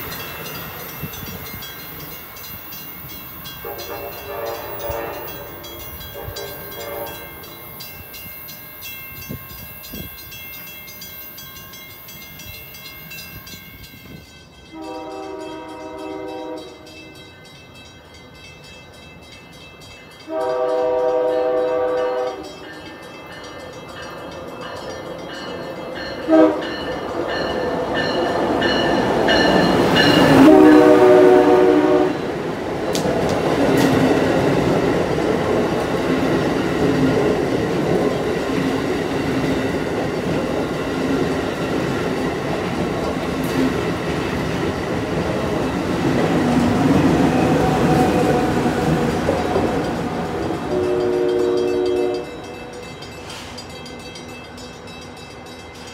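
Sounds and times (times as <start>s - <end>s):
train passing rumble: 0.0s - 55.9s
train horn: 3.6s - 7.5s, 14.7s - 17.2s, 20.2s - 22.8s, 26.2s - 26.9s, 30.0s - 32.3s, 50.6s - 53.0s.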